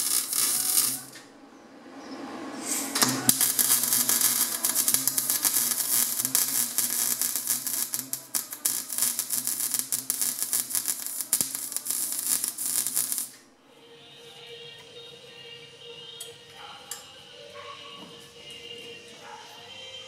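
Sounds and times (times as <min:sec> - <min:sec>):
welder arc crackling: 0:00.0 - 0:01.3, 0:02.8 - 0:13.4.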